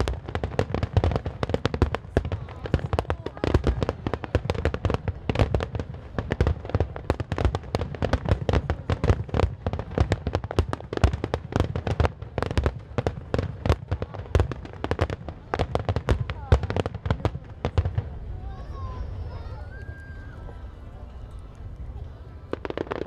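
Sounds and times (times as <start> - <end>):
fireworks bangs and thumps: 0.0 - 18.2, 22.5 - 23.0.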